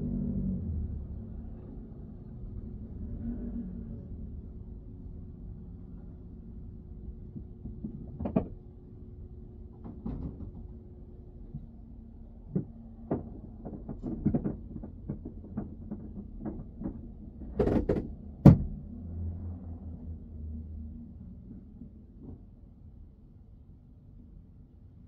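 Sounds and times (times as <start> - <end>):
knocks and taps inside car: 7.3 - 8.6, 9.7 - 10.9, 12.5 - 18.8.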